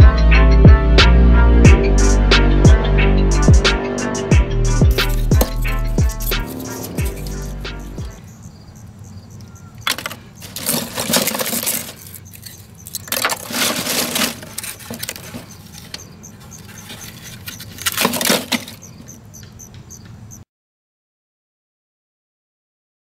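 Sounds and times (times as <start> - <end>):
charcoal clinking in metal bucket: 9.8 - 15.9, 16.9 - 18.8.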